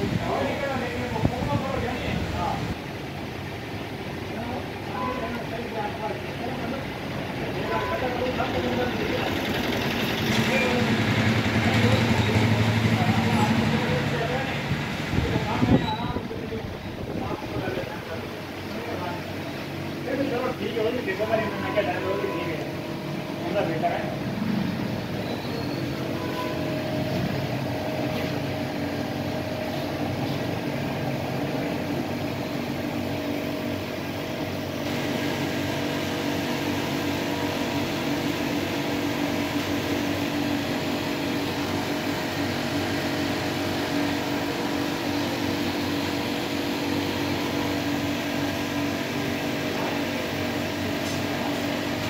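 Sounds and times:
machine motor humming: 17.8 - 52.0.

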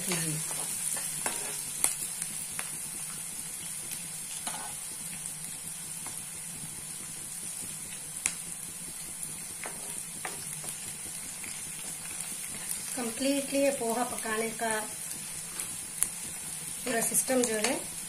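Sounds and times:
food sizzling in hot oil: 0.0 - 18.0.

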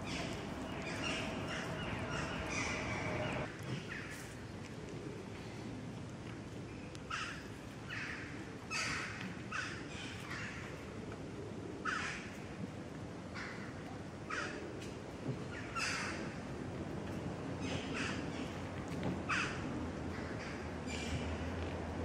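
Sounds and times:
crow cawing: 0.0 - 3.5
low background noise: 0.0 - 22.0.

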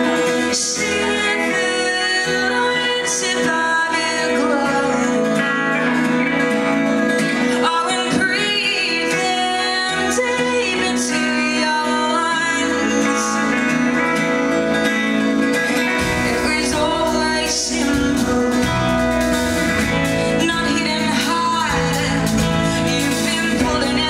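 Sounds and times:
strummed acoustic guitar: 0.0 - 24.0
woman singing: 0.0 - 24.0
deep bass: 16.0 - 24.0.

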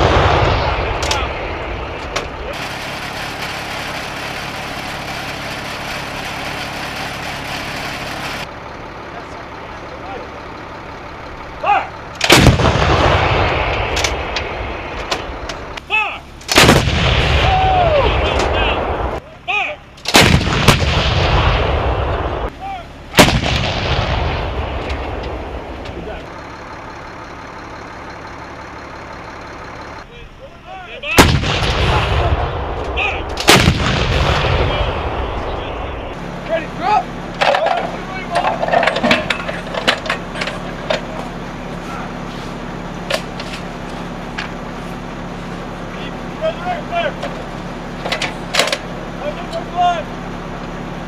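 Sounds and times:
echo of artillery shot: 0.0 - 4.4, 12.2 - 15.4, 16.5 - 19.2, 20.1 - 22.5, 23.1 - 25.8, 31.2 - 36.1
engine idling with hiss: 0.0 - 51.0.

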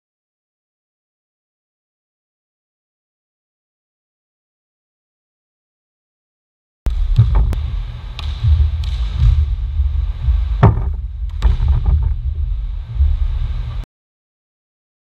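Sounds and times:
low rumble: 6.9 - 13.9.

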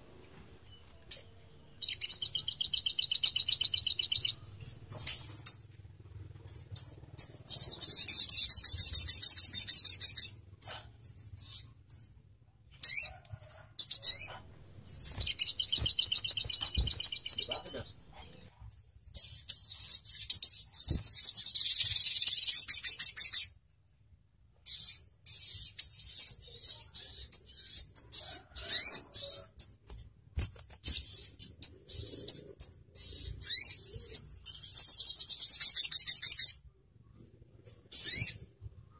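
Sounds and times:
bird chirps: 0.1 - 23.6, 24.6 - 29.8, 30.4 - 38.9
bird singing trilled bursts: 1.1 - 5.7, 6.4 - 10.4, 13.8 - 17.9, 19.2 - 23.5.

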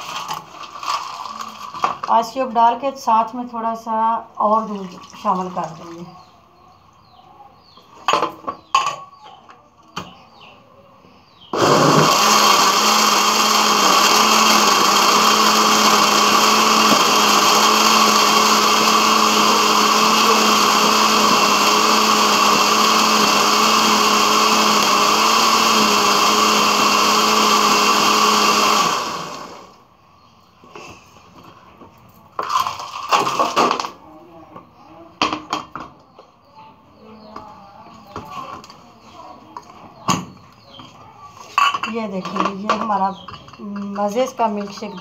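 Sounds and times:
electric blender running: 11.5 - 29.8.

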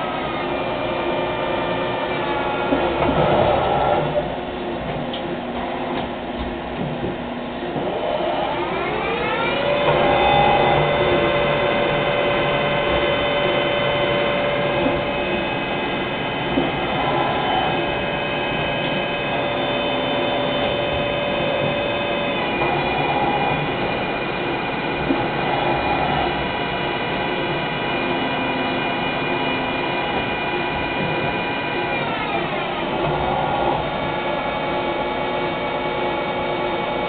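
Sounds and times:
lathe spindle whine: 0.0 - 4.8, 7.4 - 37.0.

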